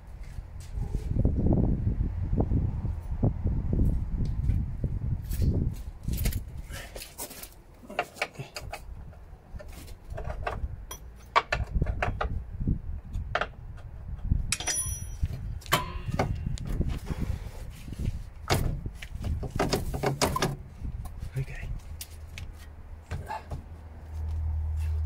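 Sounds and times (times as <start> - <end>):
low scraping and handling noise: 3.8 - 25.0
metal clinks and knocks: 10.1 - 12.3, 14.5 - 16.5.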